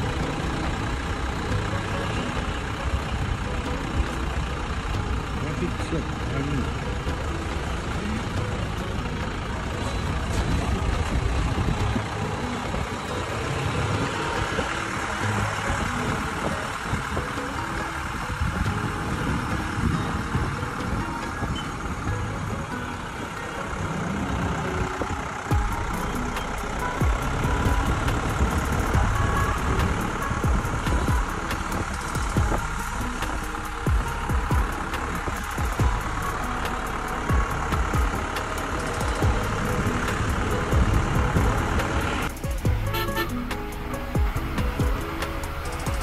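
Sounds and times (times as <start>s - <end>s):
road noise hiss: 0.0s - 46.0s
vehicle engine rumble: 0.0s - 46.0s
low thumps: 27.0s - 33.0s.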